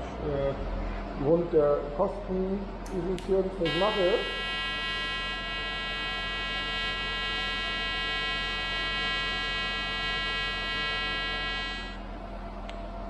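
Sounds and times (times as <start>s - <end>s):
welding arc buzzing: 3.2s - 12.1s.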